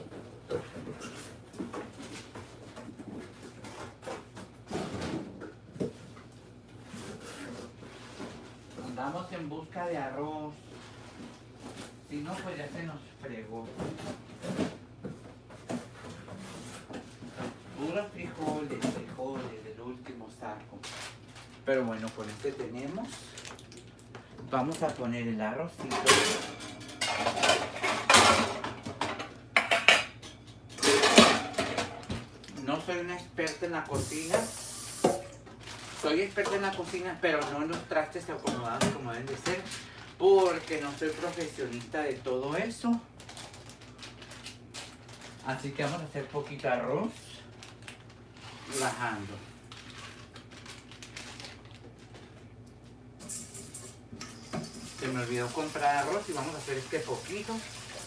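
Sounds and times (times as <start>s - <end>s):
kitchen clatter: 25.8s - 32.3s, 53.2s - 57.9s.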